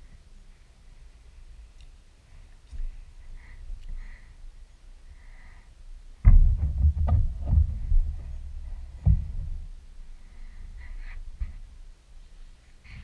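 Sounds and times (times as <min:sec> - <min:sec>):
plastic thumps and clicks: 0:06.2 - 0:09.6.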